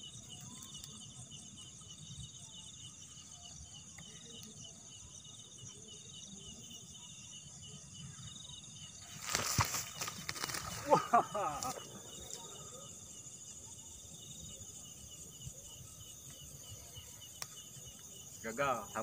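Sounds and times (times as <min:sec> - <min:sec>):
crickets and insects trilling: 0:00.0 - 0:19.0
loud rustle in grass: 0:09.0 - 0:12.4.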